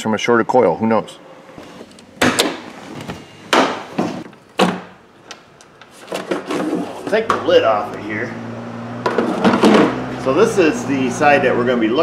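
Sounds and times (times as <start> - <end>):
sharp knocks: 2.2 - 2.7, 3.5 - 4.9
rattling handling noise: 9.0 - 10.0.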